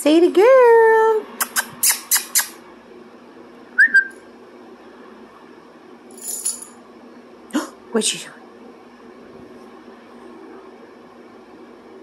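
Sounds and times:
person making kissing noises: 1.3s - 2.6s.

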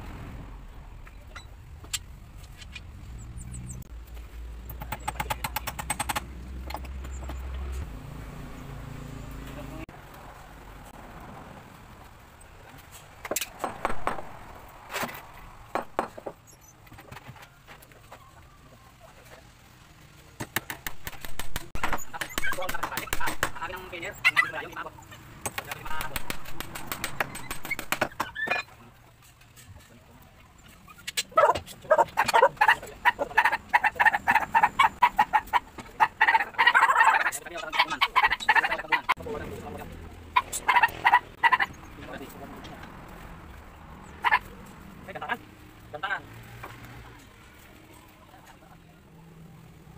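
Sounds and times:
hammer striking nails into wood: 13.3s - 14.3s, 25.4s - 28.4s
chickens clucking: 30.4s - 42.8s, 44.0s - 44.8s.

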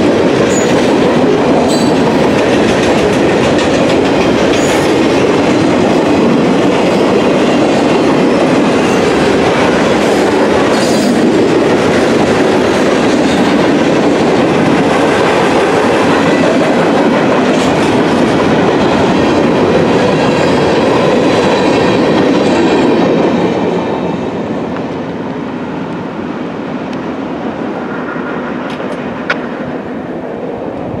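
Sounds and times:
freight train wheels clattering: 0.0s - 24.1s.

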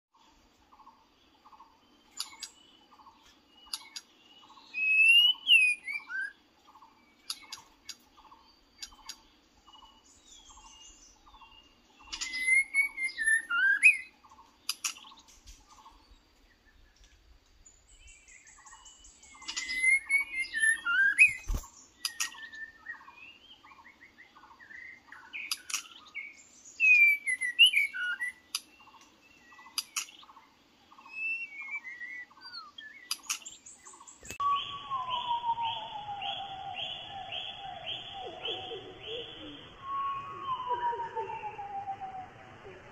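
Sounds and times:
bird singing whistled phrases: 4.6s - 6.4s, 10.5s - 14.1s, 18.3s - 23.8s, 24.7s - 28.5s, 31.0s - 33.3s, 34.2s - 42.9s.

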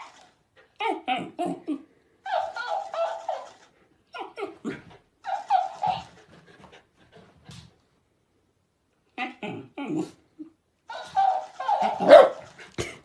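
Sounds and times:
talking toy repeating sounds: 2.2s - 4.4s.

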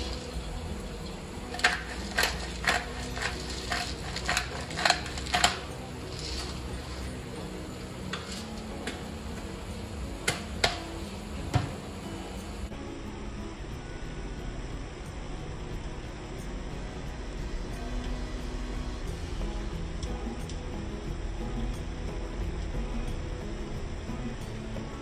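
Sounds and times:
kitchenware clinking: 0.0s - 7.2s
kitchen background noise: 0.0s - 12.8s.

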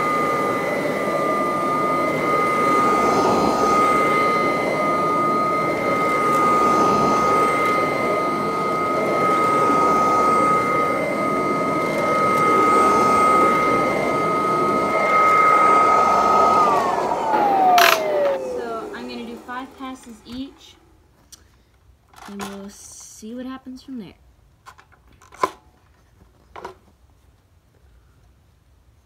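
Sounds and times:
vacuum cleaner whining: 0.0s - 21.2s.

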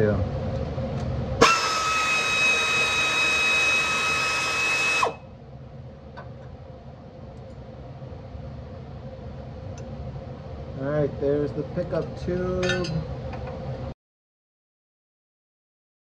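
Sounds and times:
cordless power tool whining: 1.4s - 5.2s.

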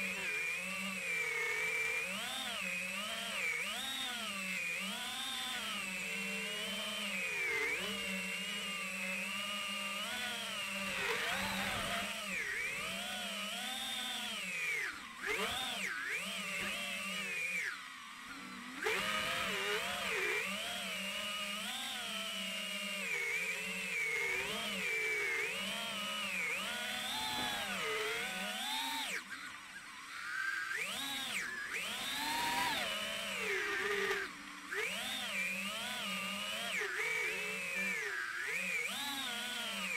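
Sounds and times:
drone motors whining: 0.0s - 39.9s.

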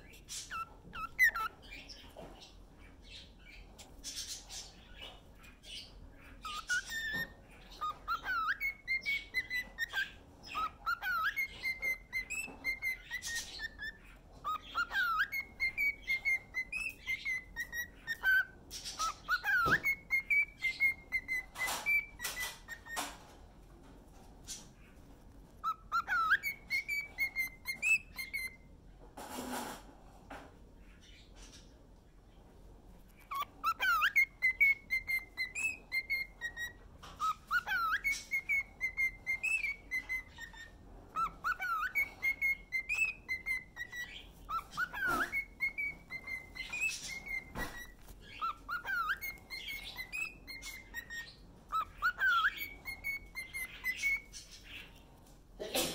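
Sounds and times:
cockatiel whistling: 0.0s - 1.8s, 5.8s - 23.2s, 25.6s - 28.6s, 33.2s - 54.9s
cockatiel clicks and chatter: 6.4s - 23.4s.

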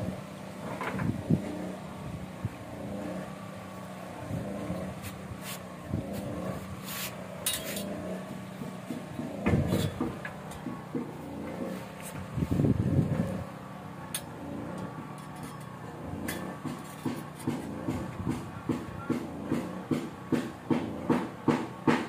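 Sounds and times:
low motor hum: 0.0s - 22.0s
knocks on engine: 16.4s - 22.0s.

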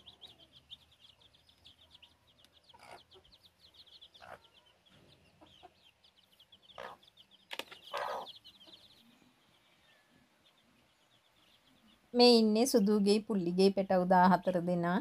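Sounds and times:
chicks peeping: 0.0s - 15.0s
hen clucking: 1.5s - 9.1s.

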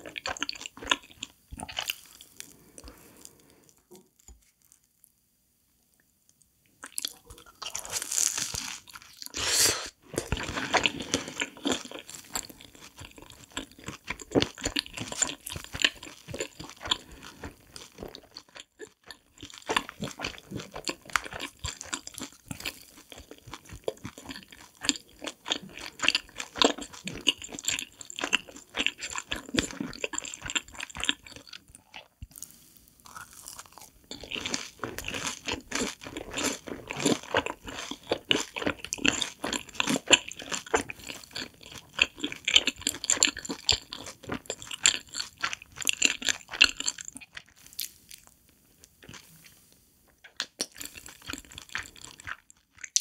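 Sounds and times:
crunching and wet chewing: 0.0s - 4.8s, 6.8s - 9.4s, 10.1s - 53.0s
crunchy bite: 33.0s - 41.5s.

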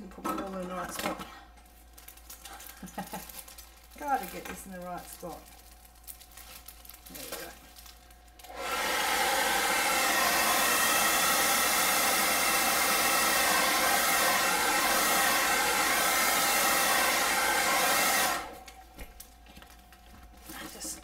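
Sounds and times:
hairdryer blowing: 8.4s - 18.8s.

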